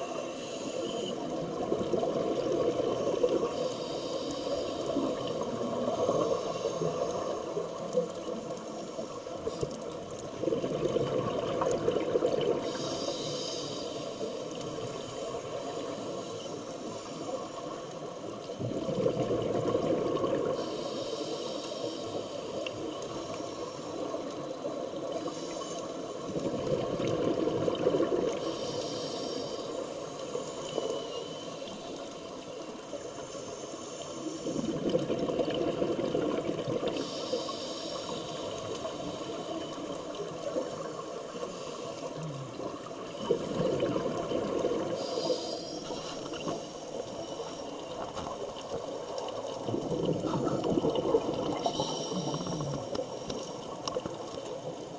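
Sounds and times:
exhaled bubbles gurgling: 1.1 - 3.7, 4.6 - 13.4, 17.6 - 20.9, 24.0 - 29.0, 34.3 - 37.5, 38.2 - 54.9.

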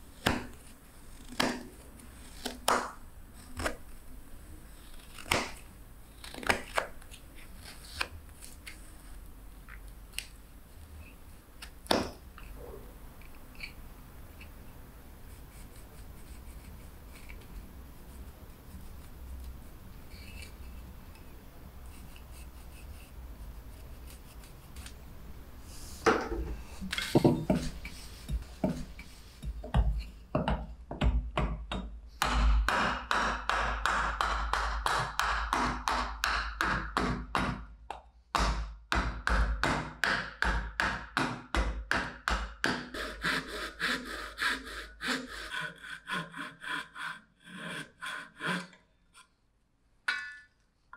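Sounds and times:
hatchet chopping wood: 0.2 - 0.6, 1.3 - 1.8, 2.4 - 3.0, 5.2 - 5.6, 11.8 - 12.2, 27.1 - 37.6, 38.3 - 43.0
handling of wood: 26.0 - 30.6.

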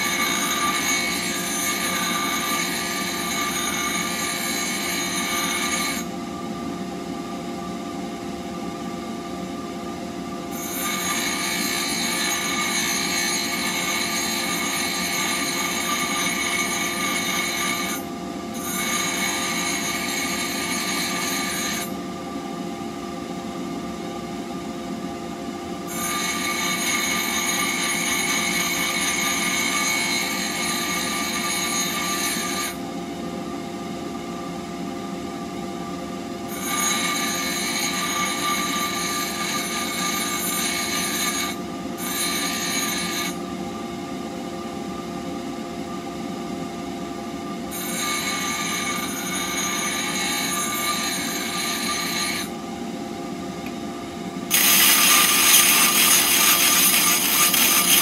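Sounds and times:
bench grinder grinding steel: 0.0 - 6.1, 10.6 - 18.0, 18.6 - 22.0, 47.8 - 52.5, 54.5 - 58.0
bench grinder motor hum: 54.5 - 58.0.

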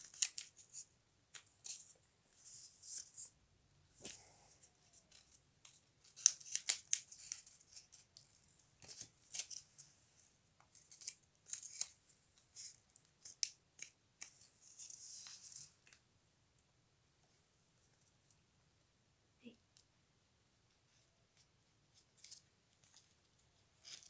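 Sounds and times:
paper rustling and crinkling: 4.0 - 9.9, 10.6 - 16.0.

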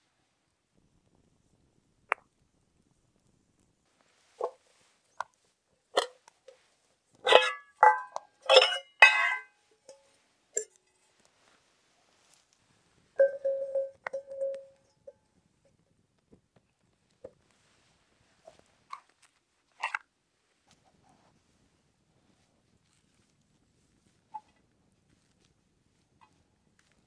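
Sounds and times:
metal pot and lid clinking: 7.2 - 10.9, 13.2 - 14.8
ringing scrape of metal: 7.3 - 10.8.

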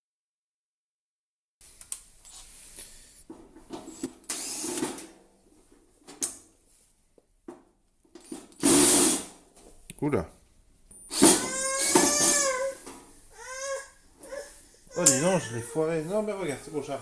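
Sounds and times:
cordless drill running: 3.9 - 5.0, 8.6 - 9.3, 11.1 - 12.8
screws clicking and knocking: 3.9 - 5.1, 8.2 - 9.2, 10.9 - 12.6.

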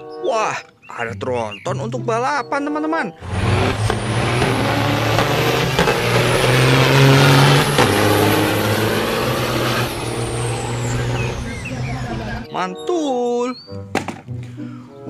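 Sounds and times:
truck engines accelerating hard: 3.2 - 12.5.

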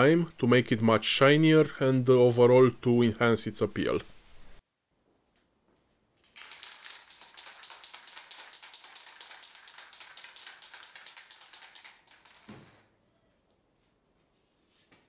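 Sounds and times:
spray can ball rattling: 6.2 - 12.9.

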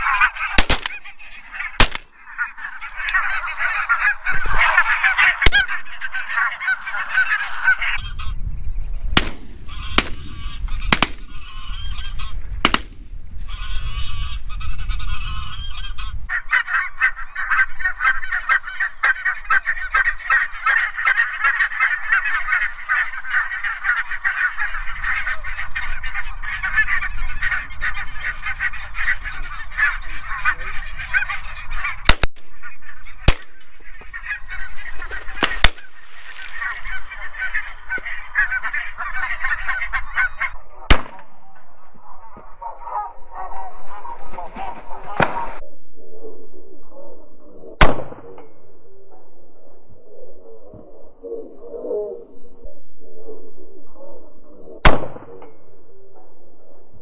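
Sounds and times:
geese honking: 0.0 - 8.5, 9.2 - 45.6.

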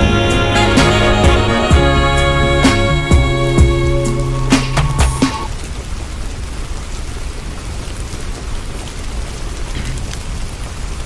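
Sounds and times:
steady rainfall: 0.0 - 11.0.

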